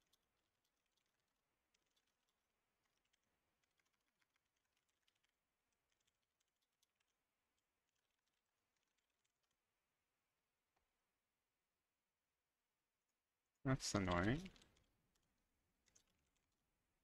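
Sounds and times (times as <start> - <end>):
faint keyboard typing: 0.0 - 10.1, 13.6 - 17.0.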